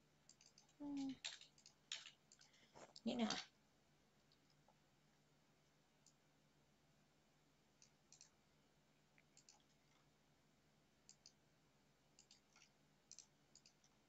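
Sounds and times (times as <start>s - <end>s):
low steady hum: 0.0s - 14.0s
computer mouse clicks: 0.2s - 3.5s, 7.8s - 8.4s, 9.2s - 10.0s, 11.0s - 11.4s, 12.1s - 14.0s.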